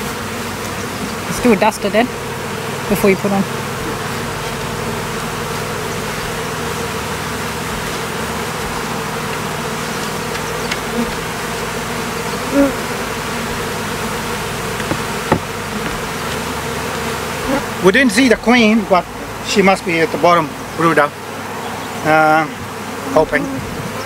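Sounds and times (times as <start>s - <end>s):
honeybees buzzing: 0.0s - 24.0s
short knock: 14.8s - 16.0s.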